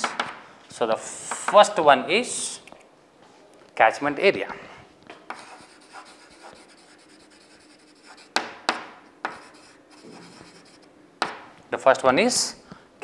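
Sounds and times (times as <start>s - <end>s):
chalk scratching on chalkboard: 5.3s - 8.4s, 9.2s - 10.9s
chalk tapping on board: 5.3s - 11.4s.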